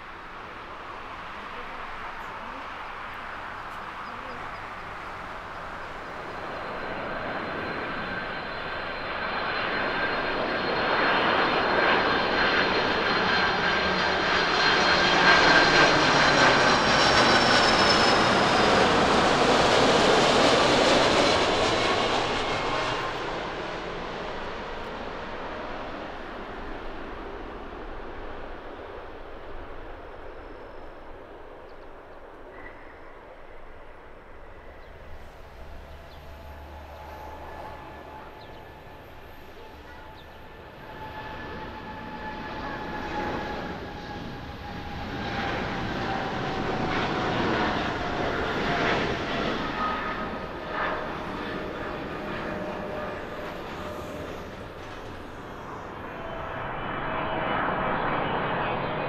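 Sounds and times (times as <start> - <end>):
jet engines passing overhead: 0.0 - 59.0.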